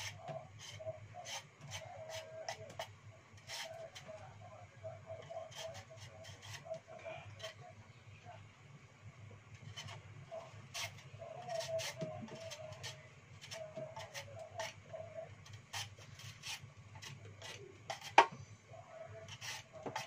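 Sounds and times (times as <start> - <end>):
peeler scraping vegetable skin: 10.7 - 14.8, 15.5 - 18.2, 19.2 - 20.0.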